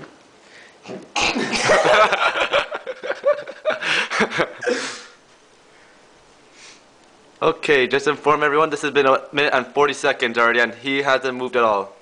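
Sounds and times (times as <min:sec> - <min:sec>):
person chuckling: 0:01.4 - 0:05.1.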